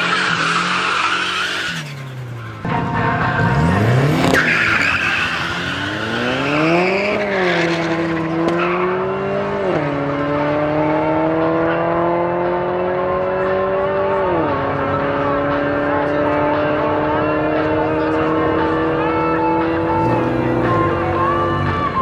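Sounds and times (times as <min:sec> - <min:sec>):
tyres screeching in wheelspin: 0:00.0 - 0:09.1
car engines accelerating hard: 0:00.0 - 0:22.0.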